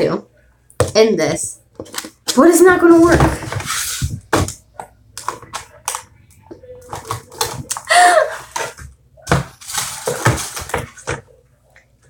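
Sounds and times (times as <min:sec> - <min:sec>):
plastic tubes clattering in wooden box: 0:06.8 - 0:11.3.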